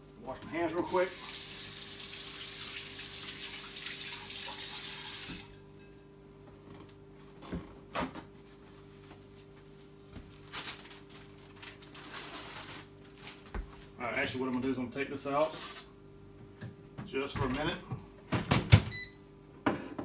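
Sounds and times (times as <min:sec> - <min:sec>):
faucet running into steel sink: 0:00.9 - 0:05.5.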